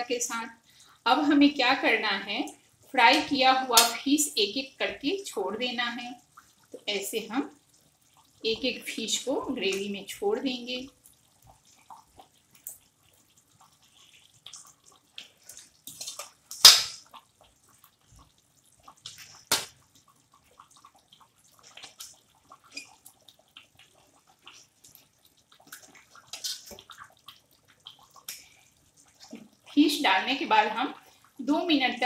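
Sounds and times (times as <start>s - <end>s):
fish plopping into gravy: 11.1s - 29.8s.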